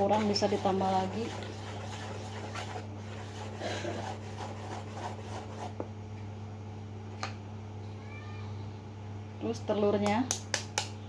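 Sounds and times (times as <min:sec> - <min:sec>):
hands stirring flour in bowl: 0:00.0 - 0:05.9
steady low hum: 0:00.0 - 0:11.0.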